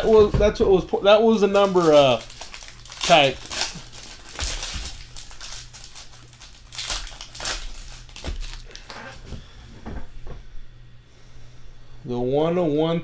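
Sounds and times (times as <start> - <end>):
foil wrappers crinkling: 1.0 - 9.2.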